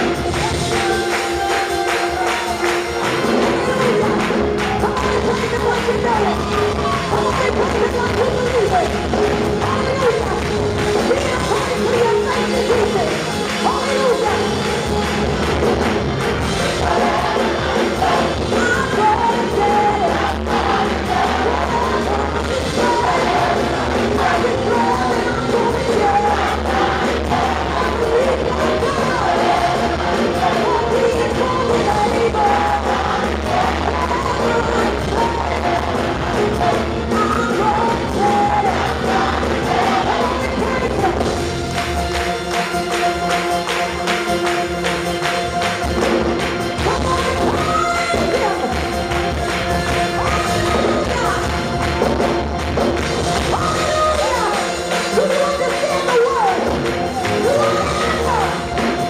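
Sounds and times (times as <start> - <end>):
hand clapping: 0.0 - 16.6, 41.6 - 53.5
gospel choir singing: 0.0 - 59.0.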